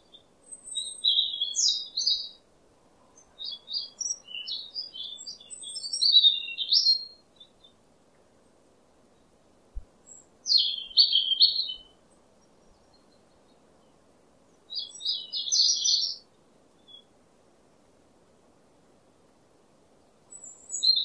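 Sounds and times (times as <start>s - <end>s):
small bird high chirping: 0.0s - 2.4s, 3.2s - 7.8s, 10.1s - 13.6s, 14.7s - 17.1s, 20.3s - 21.0s.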